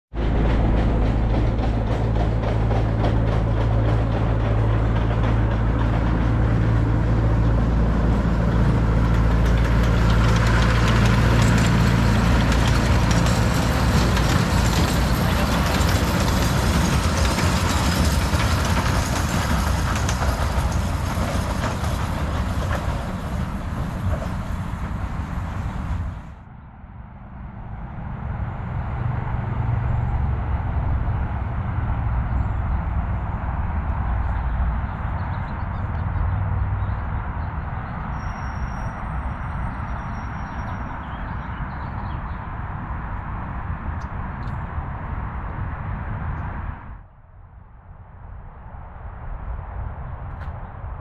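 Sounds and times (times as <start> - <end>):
train wheels rumbling on rails: 0.1 - 26.5, 27.8 - 47.1
miniature train engine humming: 0.9 - 26.1.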